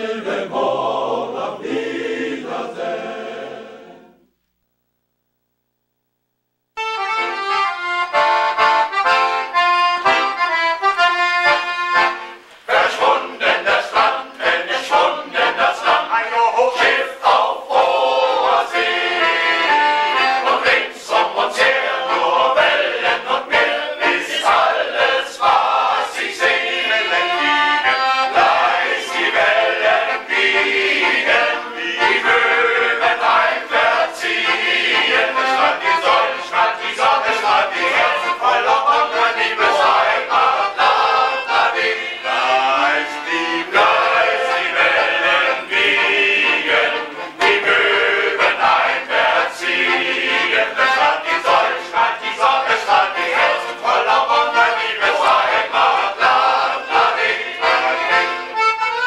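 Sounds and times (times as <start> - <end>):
male-voice choir singing: 0.0 - 4.3, 12.6 - 58.7.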